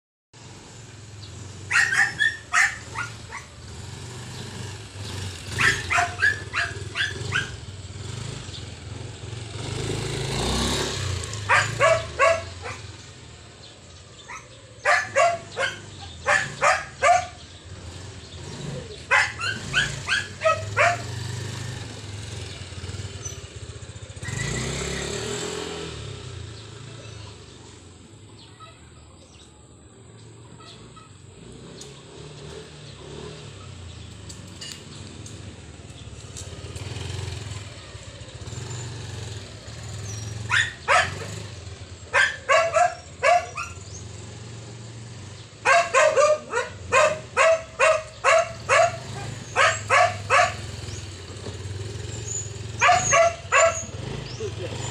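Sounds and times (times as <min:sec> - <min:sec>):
motor scooter engine: 0:00.4 - 0:54.9
dog barking: 0:01.7 - 0:03.5, 0:05.6 - 0:07.6, 0:11.4 - 0:12.8, 0:14.3 - 0:17.4, 0:19.1 - 0:21.1, 0:40.4 - 0:41.4, 0:42.1 - 0:43.8, 0:45.6 - 0:50.7, 0:52.8 - 0:54.0.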